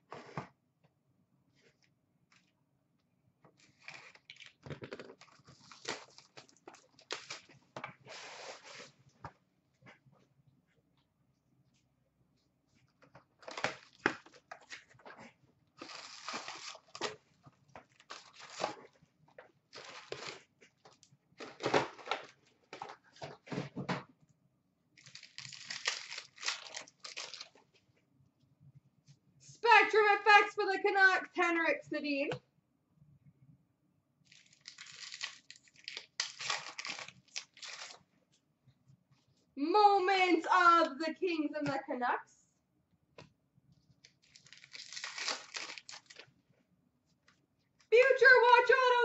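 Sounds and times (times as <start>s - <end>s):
foil packs crinkling: 3.6s - 7.6s, 15.8s - 17.2s, 17.9s - 19.0s, 19.7s - 22.8s, 25.0s - 27.6s, 34.3s - 38.0s, 44.0s - 46.3s.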